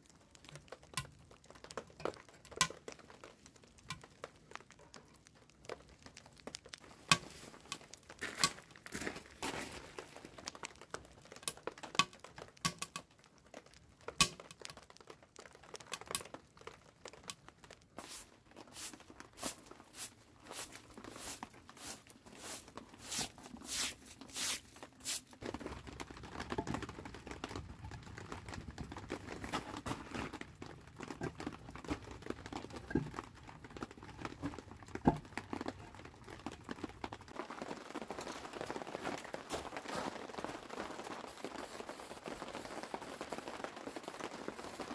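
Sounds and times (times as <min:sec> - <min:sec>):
wood fire crackling: 0:00.0 - 0:44.9
rustling with knocks: 0:17.9 - 0:44.9
push broom sweeping concrete: 0:18.0 - 0:25.4.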